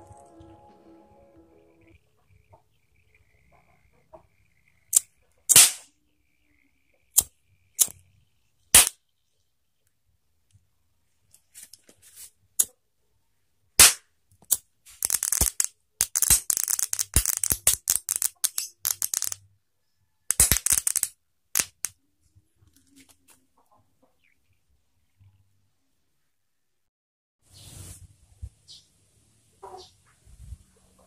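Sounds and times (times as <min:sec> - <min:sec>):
crackling pops: 0:04.9 - 0:06.0, 0:07.1 - 0:08.0, 0:08.7 - 0:09.0, 0:13.8 - 0:19.4, 0:20.3 - 0:22.0.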